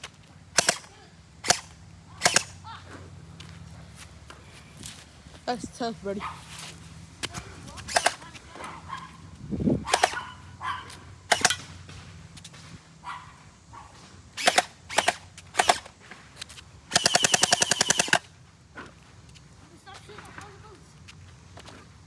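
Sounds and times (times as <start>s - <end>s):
gel blaster shots: 0.6s - 2.6s, 9.8s - 10.2s, 11.3s - 11.6s.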